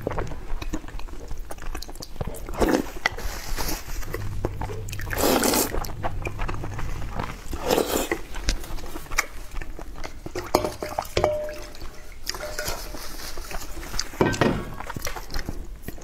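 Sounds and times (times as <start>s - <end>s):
metal bowl clinking: 10.4s - 13.2s.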